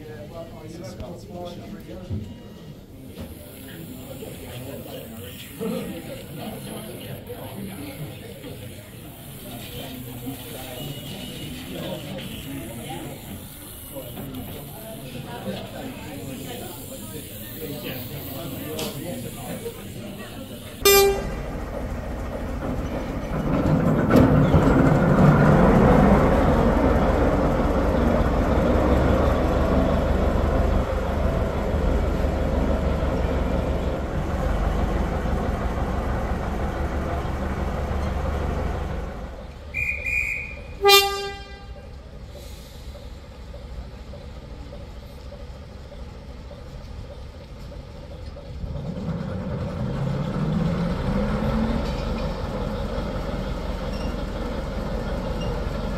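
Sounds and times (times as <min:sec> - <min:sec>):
model train running: 0:00.0 - 0:55.9
model train horn toot: 0:20.6 - 0:21.5, 0:39.7 - 0:41.9.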